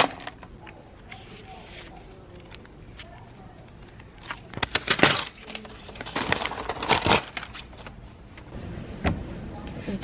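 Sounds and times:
paper pages rustling: 1.0 - 8.0.

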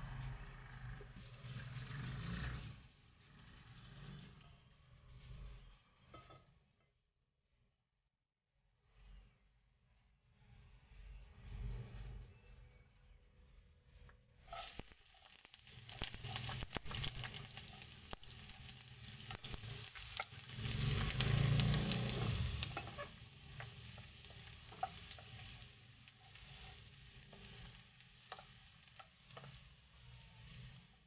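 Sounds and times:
onions sizzling in hot oil: 0.1 - 4.2, 14.4 - 31.0
wooden spoon scraping a pan: 14.4 - 31.0.

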